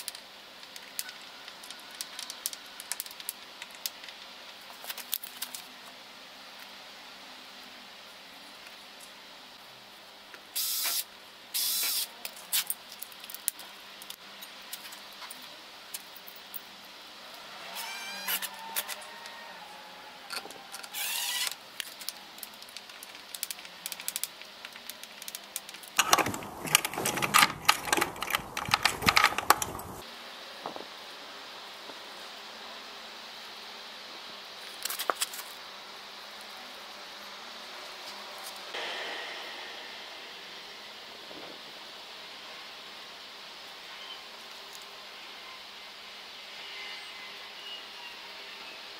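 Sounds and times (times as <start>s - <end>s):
spray can hissing: 10.6s - 11.0s
lock clicking and rattling: 25.1s - 30.0s.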